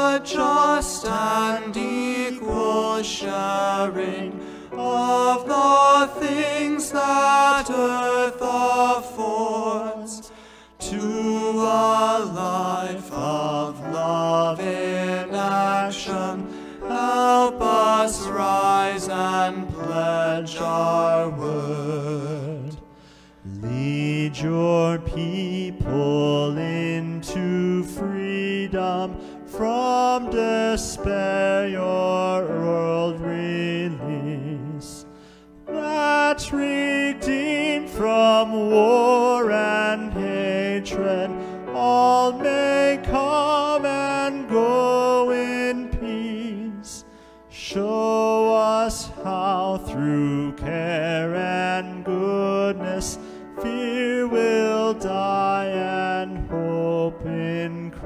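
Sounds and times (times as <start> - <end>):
grand piano: 0.0 - 58.0
person singing a hymn: 0.0 - 58.0
singer breathing: 4.4 - 4.8, 10.3 - 10.8, 16.4 - 16.9, 22.8 - 23.5, 35.0 - 35.6, 41.4 - 41.6, 47.0 - 47.5, 53.2 - 53.6.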